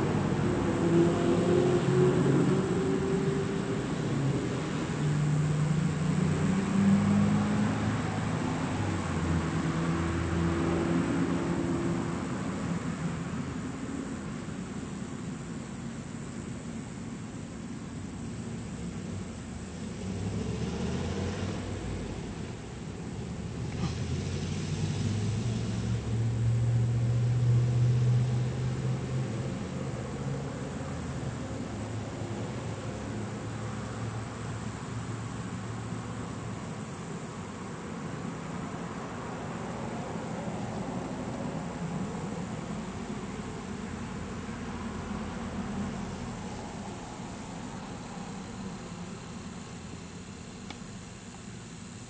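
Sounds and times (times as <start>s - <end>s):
distant engine droning: 0.0s - 14.9s, 38.9s - 51.9s
high-pitched hiss: 0.0s - 52.0s.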